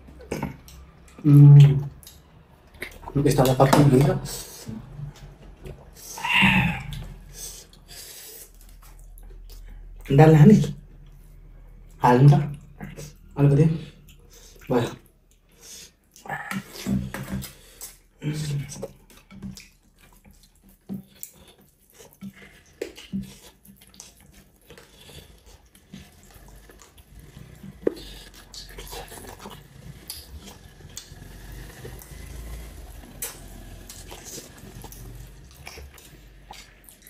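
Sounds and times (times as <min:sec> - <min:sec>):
wet chewing and lip smacks: 0:01.8 - 0:03.6, 0:06.8 - 0:10.1, 0:18.8 - 0:37.0.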